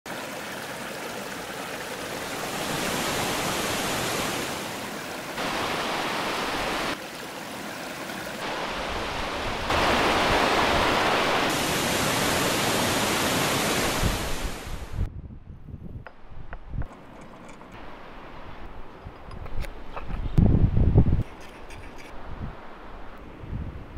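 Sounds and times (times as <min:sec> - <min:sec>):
water rushing over rocks: 0:00.1 - 0:15.0.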